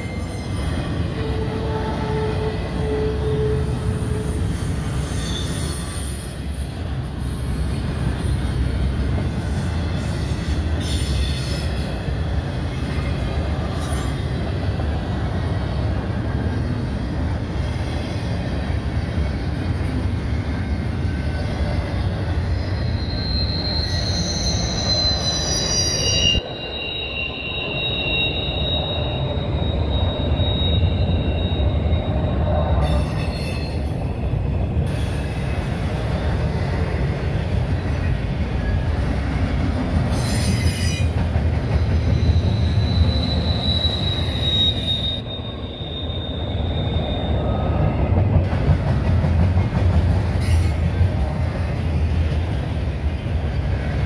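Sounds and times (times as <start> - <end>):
high-pitched wheel squeal: 0.0 - 6.8, 22.0 - 36.7, 42.0 - 48.0
steel wheels rumbling on rail: 0.0 - 54.0.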